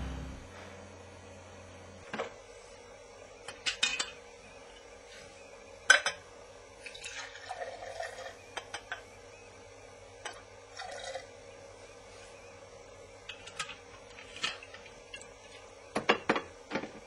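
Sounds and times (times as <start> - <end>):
liquid pouring into glass: 6.9 - 8.3, 10.7 - 11.3.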